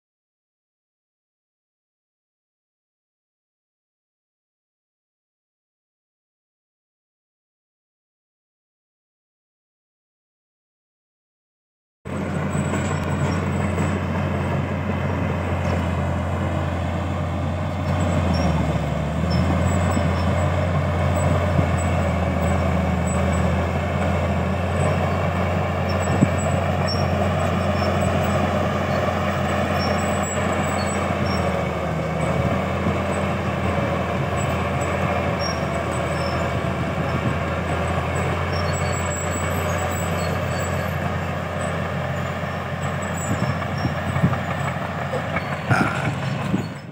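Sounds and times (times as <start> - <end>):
bulldozer diesel engine: 12.1 - 46.9.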